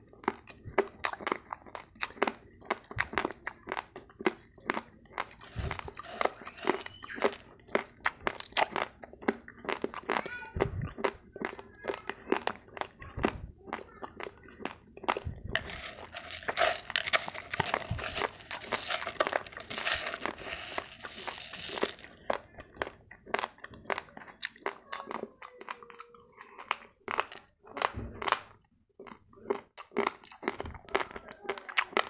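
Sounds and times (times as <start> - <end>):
chewing hard rice grains: 0.0 - 32.0
dry rice grains rustling: 5.4 - 7.4, 15.6 - 22.2.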